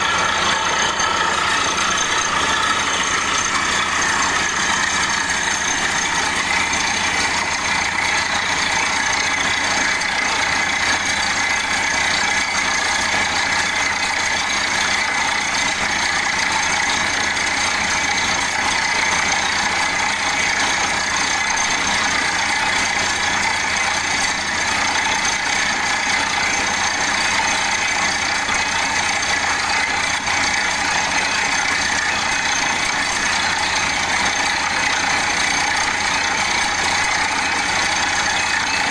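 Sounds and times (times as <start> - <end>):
drill pipe hissing: 0.0 - 13.5
drilling rig engine drone: 0.0 - 38.9.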